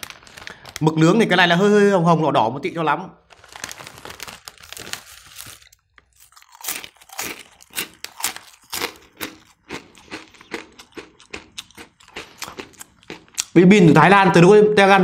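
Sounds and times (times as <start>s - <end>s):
foil bag rustling: 0.0s - 1.3s, 3.3s - 8.5s
crunchy snack chewing: 3.9s - 13.6s.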